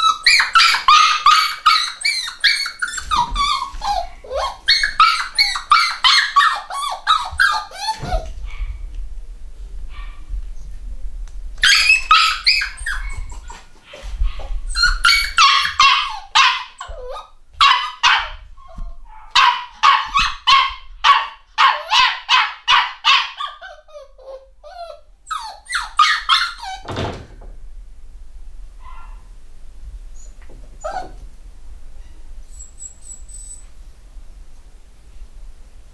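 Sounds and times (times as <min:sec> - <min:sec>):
faint puppy yips: 0:00.0 - 0:08.8, 0:11.6 - 0:26.9, 0:28.8 - 0:29.3, 0:30.2 - 0:31.2, 0:32.0 - 0:33.8
puppy yelping and whining: 0:00.0 - 0:08.8, 0:11.6 - 0:27.2, 0:28.8 - 0:29.3, 0:30.1 - 0:31.3, 0:32.0 - 0:33.8.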